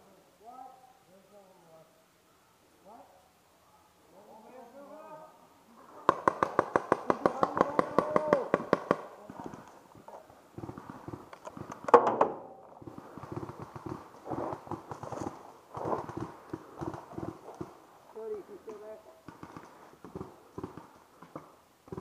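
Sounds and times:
paintball shots: 0:06.0 - 0:09.2, 0:10.6 - 0:14.9
rustling through brush: 0:12.8 - 0:21.6.

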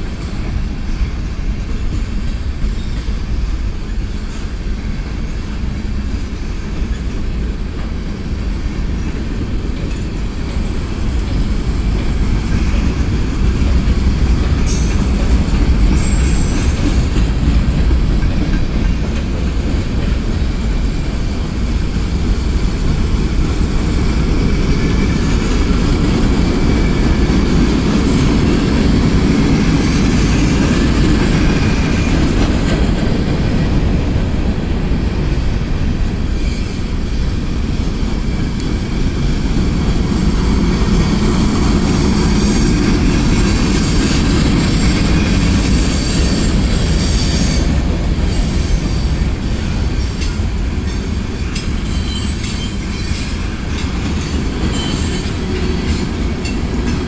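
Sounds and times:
freight train wheels rumbling: 0:00.0 - 0:57.0
high wheel squeal: 0:42.4 - 0:50.3, 0:51.4 - 0:56.0.

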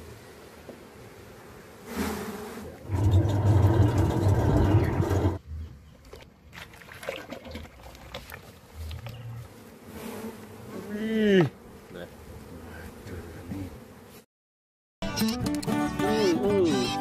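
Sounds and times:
honeybees buzzing: 0:00.0 - 0:06.0, 0:08.4 - 0:14.3.

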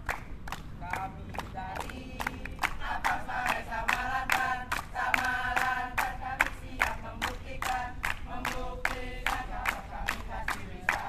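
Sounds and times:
steady clapping: 0:00.0 - 0:11.0
group chanting and shouting: 0:00.8 - 0:11.0.

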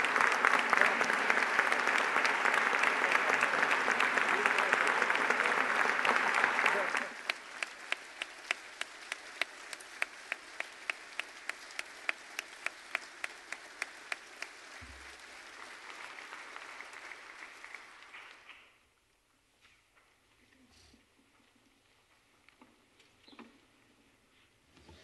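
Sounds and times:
one person clapping loudly: 0:00.0 - 0:18.4
congregation applauding: 0:00.0 - 0:18.5.

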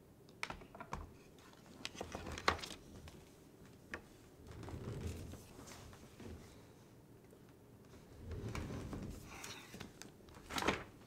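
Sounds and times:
soft rustle: 0:02.8 - 0:06.9.

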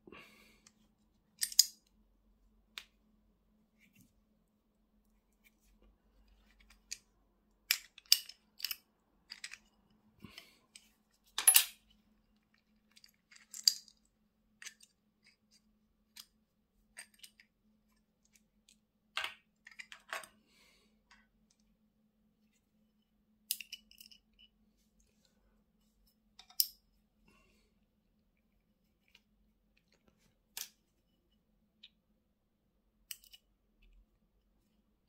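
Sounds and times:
small metal parts clicking: 0:01.4 - 0:01.9, 0:07.7 - 0:09.7, 0:12.8 - 0:15.4, 0:33.1 - 0:33.5.

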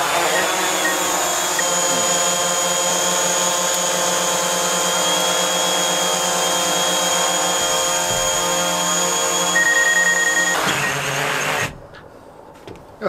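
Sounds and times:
drone propellers whining: 0:00.0 - 0:04.0.

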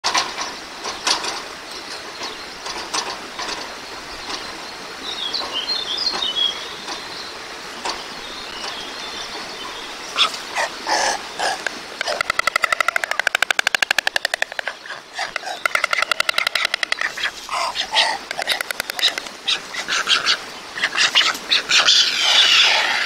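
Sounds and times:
small bird chirping: 0:08.3 - 0:20.4
stork bill clattering: 0:10.1 - 0:21.9.

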